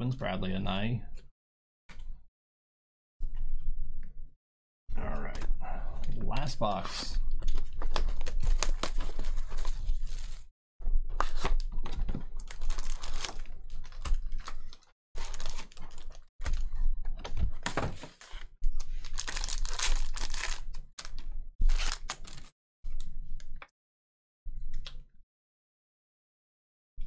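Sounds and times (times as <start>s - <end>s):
foil packs crinkling and tearing: 7.8s - 10.4s, 12.4s - 16.6s, 18.1s - 22.5s.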